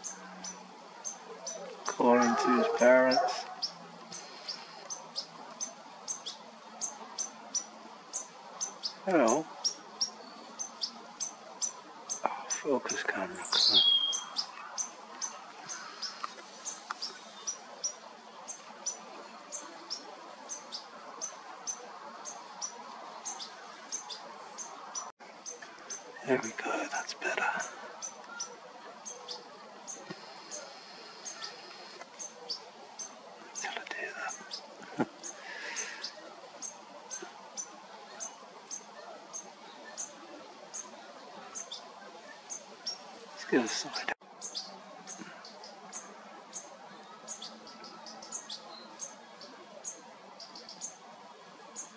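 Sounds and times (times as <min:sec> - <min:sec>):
bird high chirps: 0:00.0 - 0:26.4.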